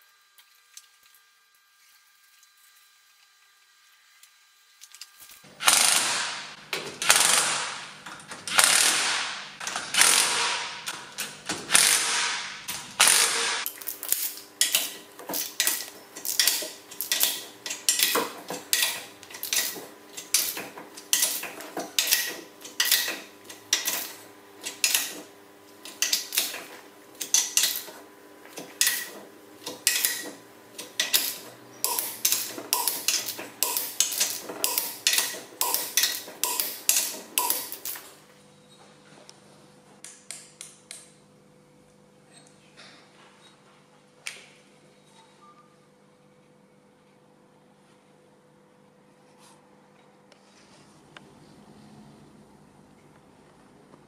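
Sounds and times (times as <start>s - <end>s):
ratchet wrench clicking: 5.6s - 6.3s, 7.0s - 7.8s, 8.5s - 10.8s, 11.7s - 12.4s, 13.0s - 14.9s, 28.8s - 38.0s.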